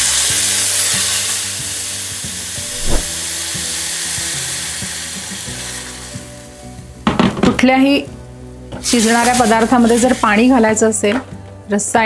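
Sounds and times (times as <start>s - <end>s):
water sizzling in hot pan: 0.0s - 7.1s, 8.7s - 10.8s.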